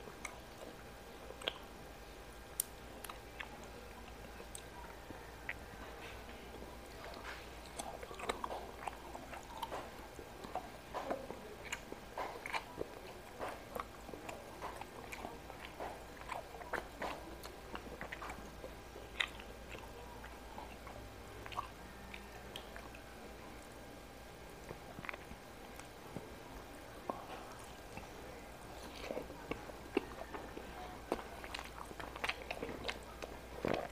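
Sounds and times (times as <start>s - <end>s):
person chewing and biting: 0.2s - 1.7s, 2.5s - 23.0s, 24.5s - 26.0s, 27.0s - 33.9s
wet smacks and clicks: 1.3s - 1.7s, 2.5s - 4.8s.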